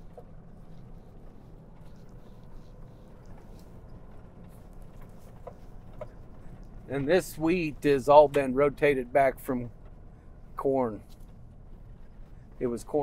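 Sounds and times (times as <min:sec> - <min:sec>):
vehicle cab rumble on dirt road: 0:00.0 - 0:13.0.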